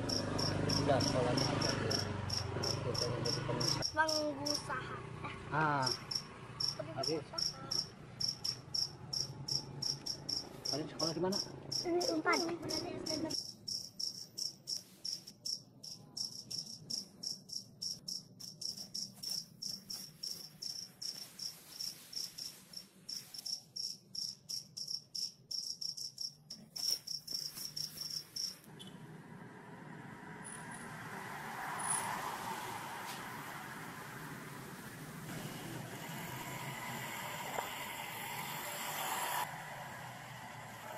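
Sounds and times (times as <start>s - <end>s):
cricket chirping: 0.0s - 4.7s, 5.8s - 28.7s
rushing street traffic noise: 0.0s - 23.5s, 27.4s - 40.9s.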